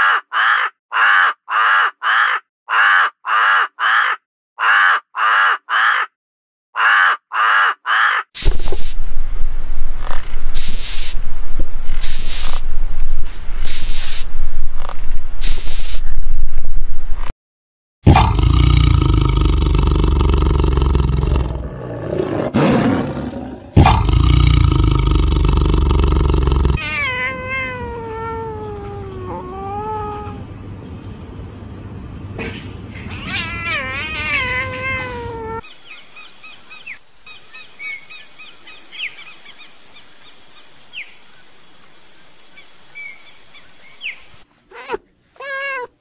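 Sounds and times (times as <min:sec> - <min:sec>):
big cat roaring: 0:18.1 - 0:27.1
wavering cat-like meowing calls: 0:26.6 - 0:30.5, 0:33.1 - 0:35.6, 0:44.7 - 0:46.0.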